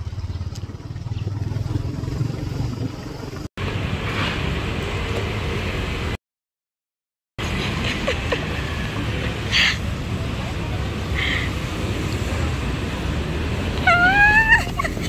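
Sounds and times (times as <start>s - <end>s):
motorcycle engine and wind rumble: 0.0s - 6.0s
street traffic hiss: 3.6s - 6.2s, 7.4s - 15.0s.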